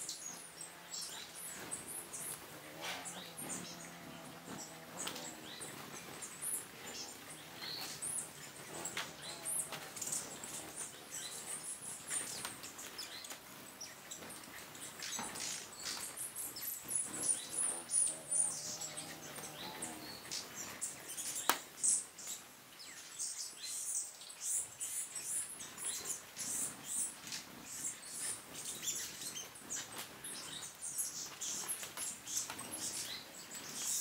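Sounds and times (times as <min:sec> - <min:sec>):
hummingbird wings humming: 0:00.0 - 0:23.4
hummingbirds chirping: 0:00.0 - 0:34.0.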